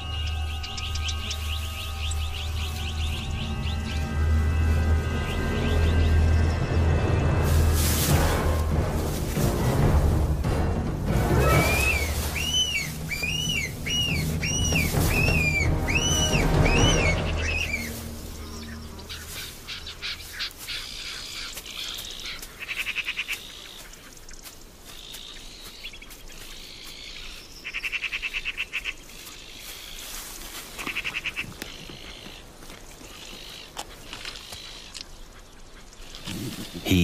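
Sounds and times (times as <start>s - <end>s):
animal chirps: 11.4s - 17.9s.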